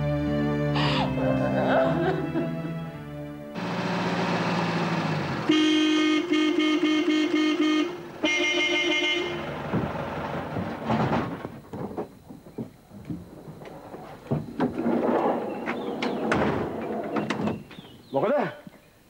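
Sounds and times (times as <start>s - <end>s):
vehicle engine running: 3.5s - 14.3s
vehicle horn beeping: 5.4s - 9.6s.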